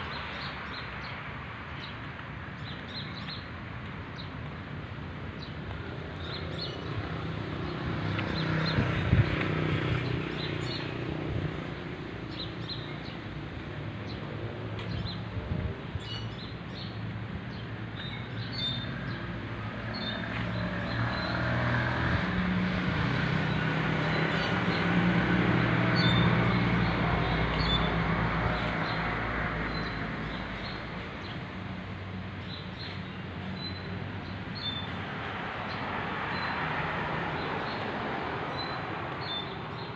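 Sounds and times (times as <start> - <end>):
road vehicle passing: 4.1 - 16.0, 16.6 - 39.9
small birds chirping: 32.3 - 36.6.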